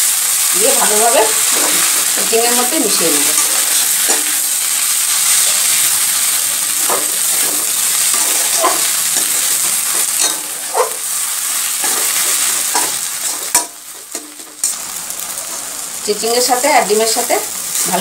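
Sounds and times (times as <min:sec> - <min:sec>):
food sizzling in a wok: 0:00.0 - 0:18.0
spatula scraping a pan: 0:06.8 - 0:10.9.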